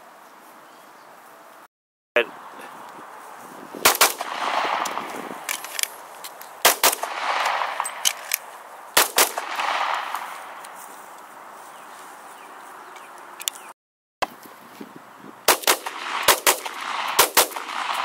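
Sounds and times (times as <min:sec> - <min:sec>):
rolling echo of gunshots: 0:03.8 - 0:05.5, 0:06.6 - 0:08.4, 0:09.0 - 0:10.6, 0:15.5 - 0:18.0
pistol shots: 0:03.8 - 0:05.6, 0:06.6 - 0:08.4, 0:09.0 - 0:10.6, 0:15.5 - 0:18.0.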